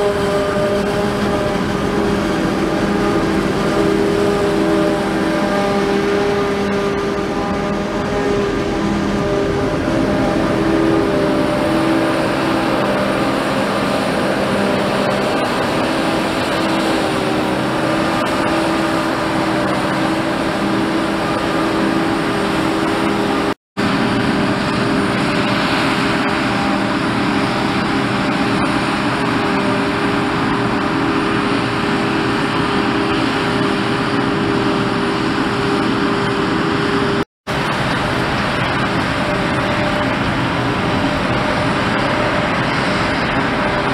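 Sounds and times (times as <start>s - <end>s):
harvester and tractor engines droning: 0.0s - 43.9s.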